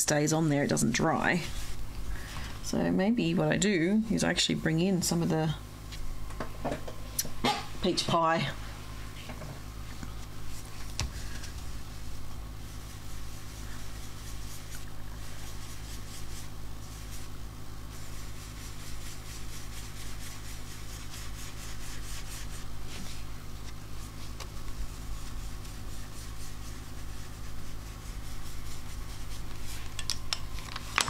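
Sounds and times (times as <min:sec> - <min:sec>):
brush rubbing on paper: 0:00.5 - 0:01.9, 0:09.9 - 0:30.0.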